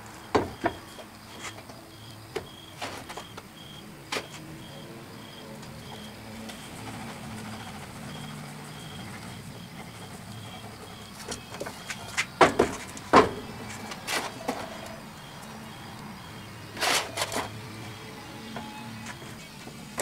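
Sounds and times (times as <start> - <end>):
steady low hum: 0.0 - 20.0
wooden box clattering: 11.2 - 14.7.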